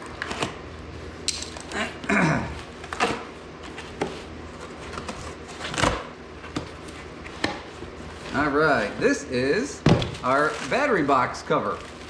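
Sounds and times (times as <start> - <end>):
paper wrapping rustling and tearing: 10.0 - 12.0.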